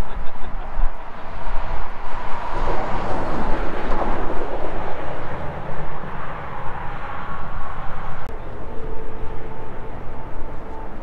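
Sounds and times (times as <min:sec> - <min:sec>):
motor vehicle rumble: 0:00.0 - 0:11.0
faint steady tone: 0:08.2 - 0:11.0.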